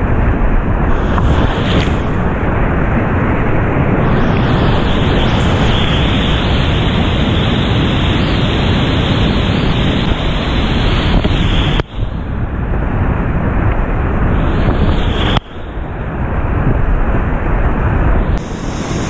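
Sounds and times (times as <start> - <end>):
whitewater rapids rushing: 0.8 - 12.3.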